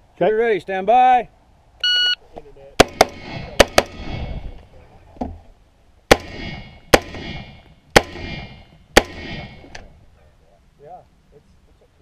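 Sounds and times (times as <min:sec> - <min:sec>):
rifle shots: 0:06.1 - 0:09.6.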